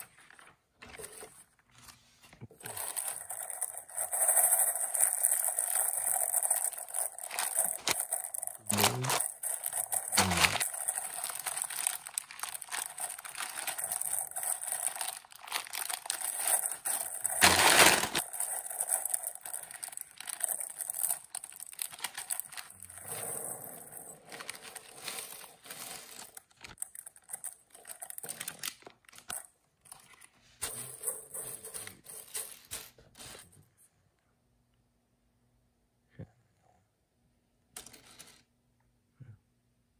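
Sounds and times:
plastic bag crinkling: 2.5 - 30.3
plastic bag ripping open: 2.6 - 23.2, 24.2 - 29.3.

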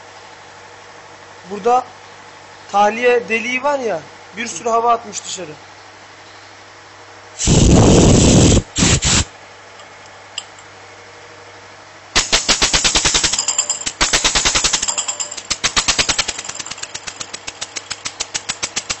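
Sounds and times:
rush of compressed air: 7.4 - 9.3, 12.2 - 13.4, 14.0 - 14.9, 15.5 - 16.5
air engine exhaust chuffing: 12.2 - 19.0.

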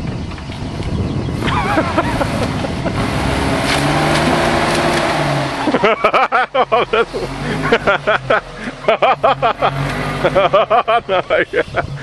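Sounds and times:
off-road vehicle engine under load: 0.0 - 12.0
voices calling out: 5.4 - 12.0.

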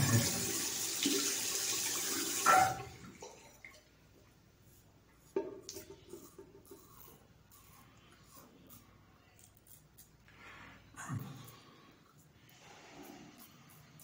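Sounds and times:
tap water running into sink: 0.0 - 2.9.

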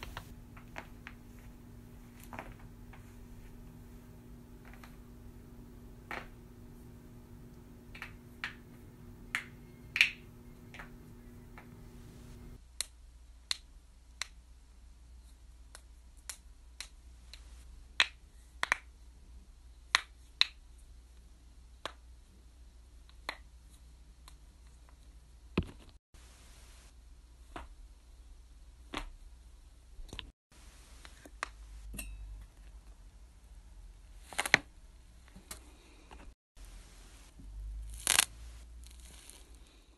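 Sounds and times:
faint steady hum: 0.0 - 13.9.

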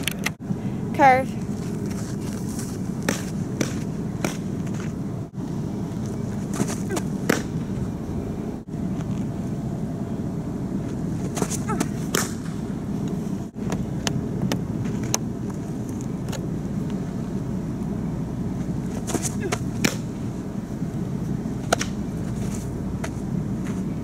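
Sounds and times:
low outdoor rumble: 0.0 - 24.0
softball hitting catcher's mitt: 3.0 - 4.9, 6.5 - 7.6, 11.3 - 12.5, 19.0 - 20.1, 21.6 - 22.0.

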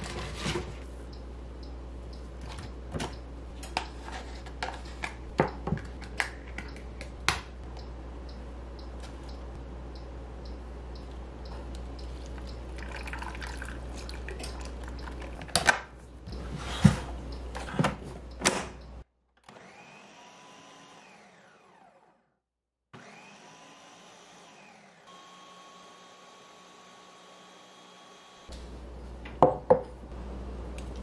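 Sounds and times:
water pouring into blender jar: 12.8 - 15.4
blender motor grinding: 19.4 - 22.3, 23.0 - 28.5.

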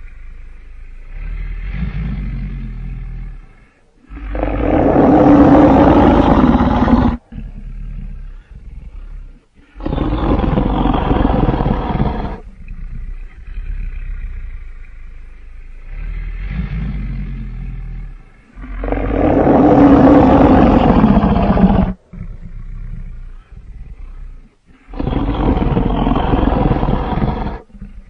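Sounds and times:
dinosaur roar: 1.0 - 14.8, 15.7 - 28.0.

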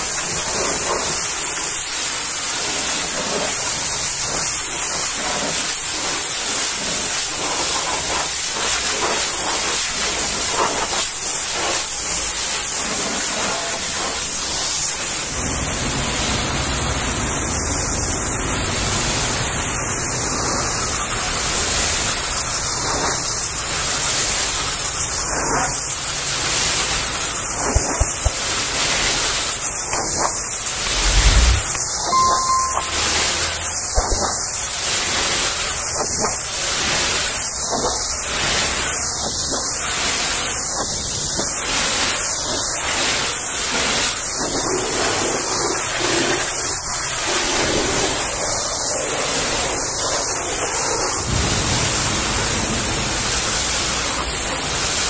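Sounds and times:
low rumble: 30.8 - 33.2.

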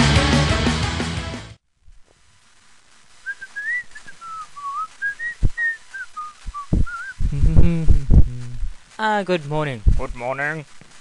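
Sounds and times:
person whistling a tune: 3.3 - 7.2
dull thumps: 6.5 - 8.8.

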